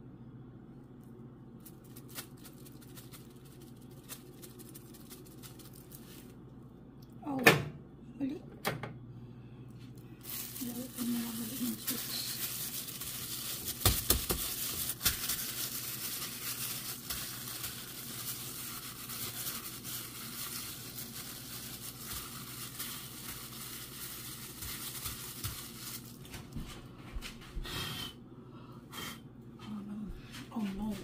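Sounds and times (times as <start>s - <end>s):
plastic glove crinkling: 0.9s - 6.6s, 9.8s - 26.7s.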